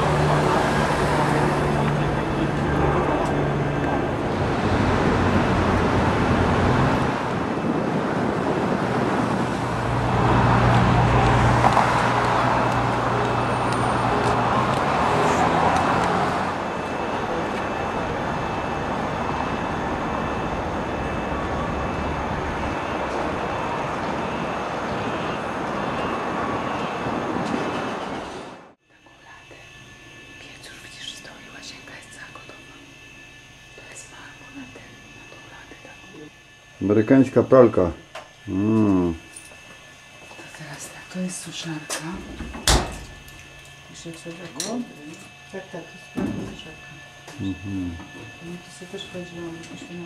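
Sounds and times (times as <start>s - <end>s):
passing cars: 0.0s - 28.8s
vehicle passing close: 0.0s - 28.8s.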